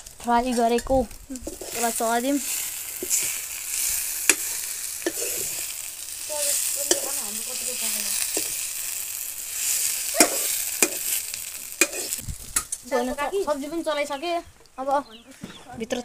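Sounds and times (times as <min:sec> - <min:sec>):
vegetables sizzling in a wok: 0:00.0 - 0:14.3
metal spoon scraping and clinking: 0:04.3 - 0:05.7, 0:06.8 - 0:07.2, 0:10.1 - 0:11.2, 0:11.8 - 0:12.2.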